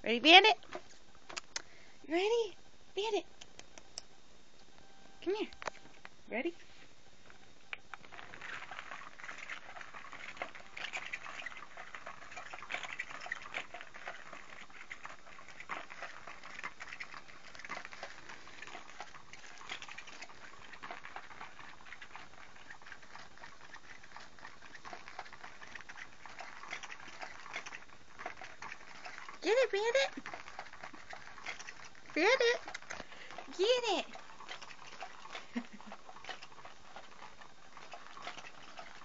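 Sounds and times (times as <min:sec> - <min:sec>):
cat toy wand scratching fabric: 0:07.9 - 0:39.0.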